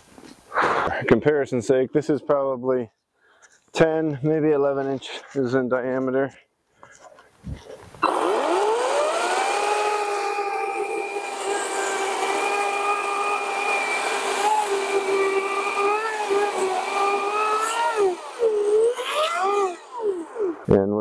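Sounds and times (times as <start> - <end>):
cordless chainsaw cutting log: 8.0 - 20.7.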